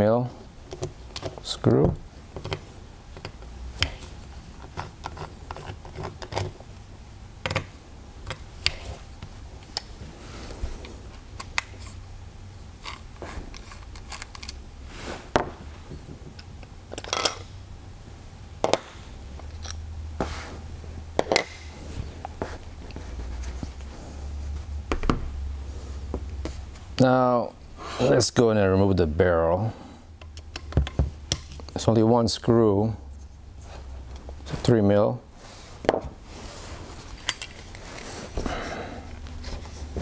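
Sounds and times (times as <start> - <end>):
low steady hum: 0.0 - 40.0
metal parts clicking and scraping: 12.8 - 14.6, 16.9 - 17.5, 37.0 - 38.1.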